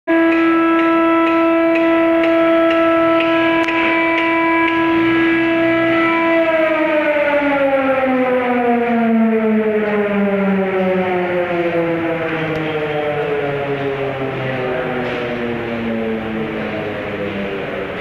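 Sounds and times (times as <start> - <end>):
air compressor whine: 0.1 - 18.0.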